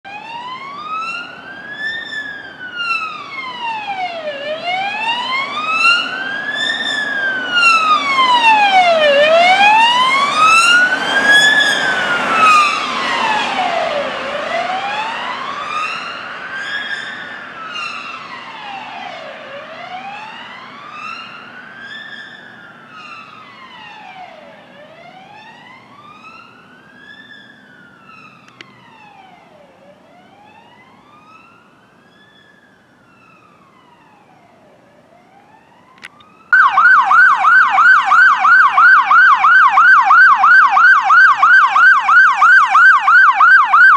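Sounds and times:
ambulance siren wailing: 0.0s - 43.9s
road noise: 0.0s - 43.9s.

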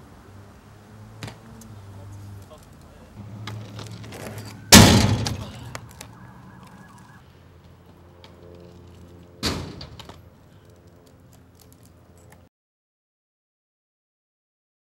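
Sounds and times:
scooter rolling on asphalt: 0.0s - 12.5s
scooter clacking on ground: 1.2s - 12.5s.

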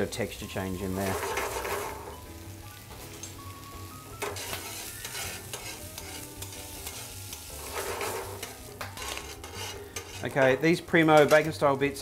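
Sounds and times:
bacon sizzling in a frying pan: 0.0s - 12.0s
metal tongs scraping a pan: 1.0s - 2.2s, 4.2s - 11.6s.

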